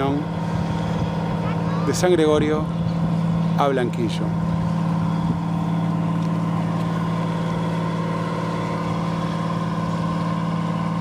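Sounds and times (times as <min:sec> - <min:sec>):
ferry engine droning: 0:00.0 - 0:11.0.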